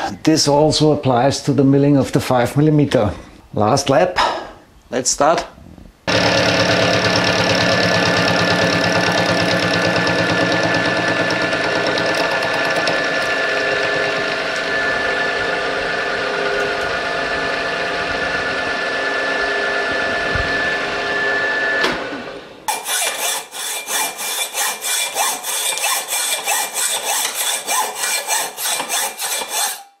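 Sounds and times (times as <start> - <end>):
fast even ticking: 6.1 - 14.3
milling machine cutting steel: 6.1 - 17.8.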